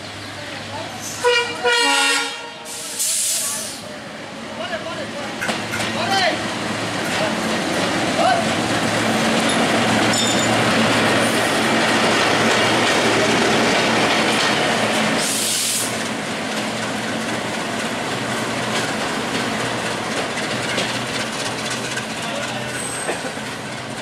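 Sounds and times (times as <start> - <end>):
diesel locomotive engine humming: 0.0 - 24.0
locomotive rumbling along track: 0.0 - 24.0
brief hiss: 2.7 - 3.9.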